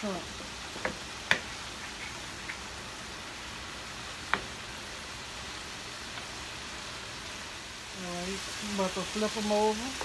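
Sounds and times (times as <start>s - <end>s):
shrimp sizzling in a pan: 0.0s - 10.0s
wooden spoon knocking on pan: 0.8s - 1.5s, 4.3s - 4.5s.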